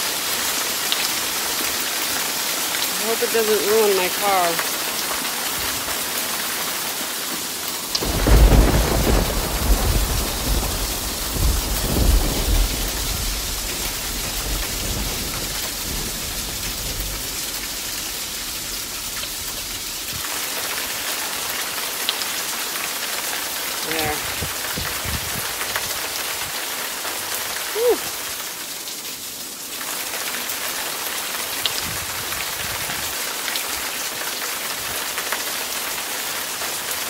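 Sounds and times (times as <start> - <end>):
hail and heavy rain: 0.0 - 37.0
thunder rumbling: 8.0 - 20.1.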